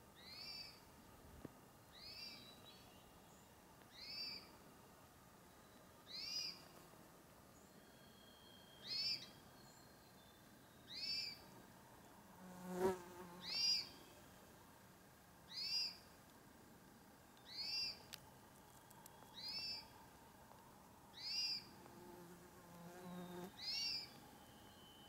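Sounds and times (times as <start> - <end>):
thin bird whistle: 7.6 - 11.4, 19.0 - 20.0, 23.6 - 25.0.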